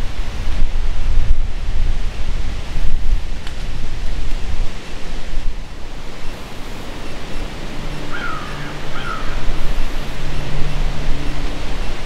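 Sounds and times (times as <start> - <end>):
strong wind through trees: 0.0 - 12.0
wind buffeting microphone: 0.0 - 12.0.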